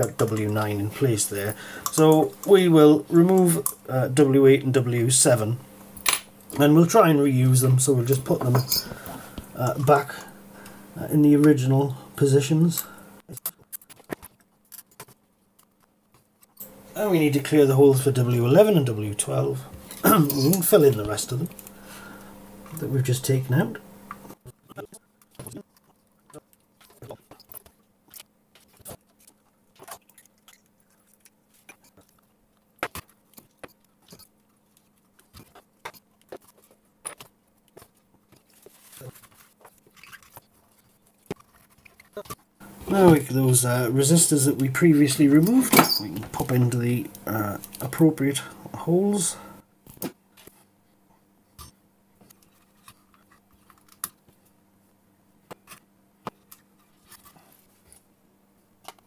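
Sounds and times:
soft rustle: 37.6s - 43.0s.

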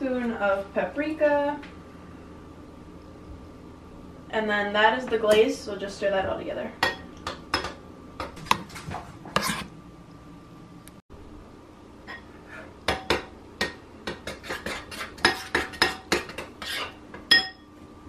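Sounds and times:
metal kitchenware clinking: 15.2s - 17.7s.

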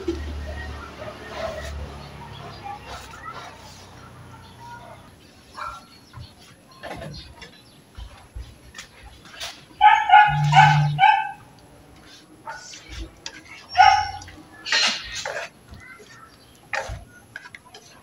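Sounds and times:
dog barking high-pitched: 9.8s - 11.4s, 13.7s - 14.3s.

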